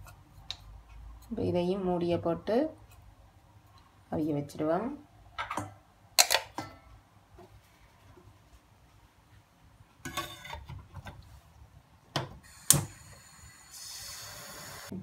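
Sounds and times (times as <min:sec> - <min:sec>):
steam hissing: 0:12.4 - 0:15.0.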